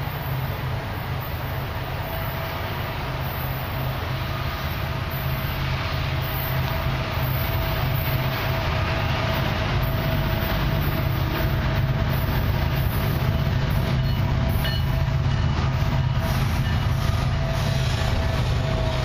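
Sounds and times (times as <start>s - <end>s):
diesel locomotives rumbling: 0.0s - 19.0s.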